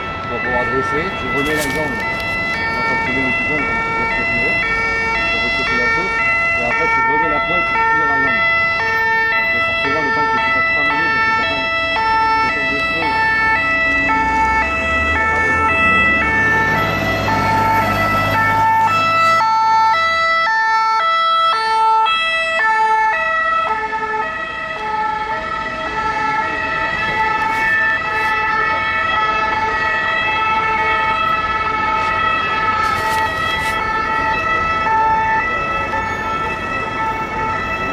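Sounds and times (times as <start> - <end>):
two-tone ambulance siren: 0.0 - 37.9.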